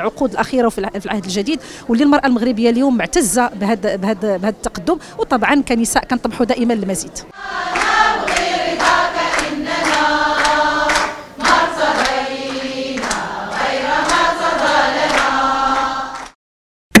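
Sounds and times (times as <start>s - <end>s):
people singing in unison: 7.3s - 16.4s
hand clapping: 7.6s - 16.4s.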